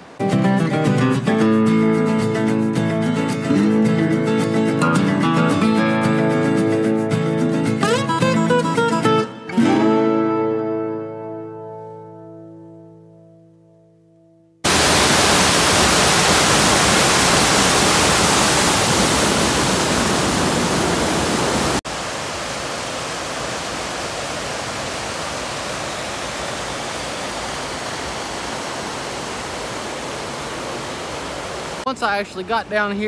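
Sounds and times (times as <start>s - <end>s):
waterfall rushing over rocks: 14.7s - 31.9s.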